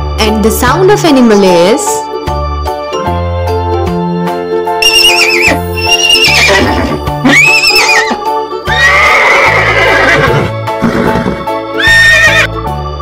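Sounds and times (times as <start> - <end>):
background music: 0.0 - 13.0
horse whinnying: 4.8 - 12.5.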